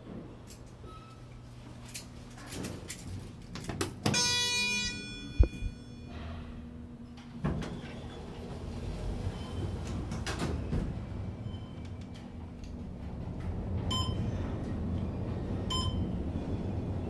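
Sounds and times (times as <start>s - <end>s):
elevator doors sliding closed: 6.2s - 17.0s.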